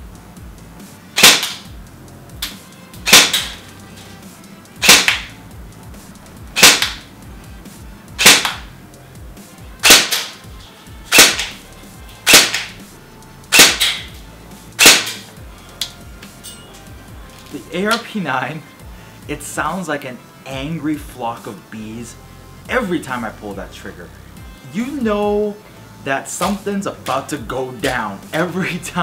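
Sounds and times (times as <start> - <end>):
airsoft gun shots: 1.2 - 1.7, 2.4 - 3.6, 4.8 - 5.3, 6.6 - 7.1, 8.2 - 8.7, 9.8 - 10.4, 11.1 - 11.6, 12.2 - 12.8, 13.5 - 14.2, 14.8 - 15.3.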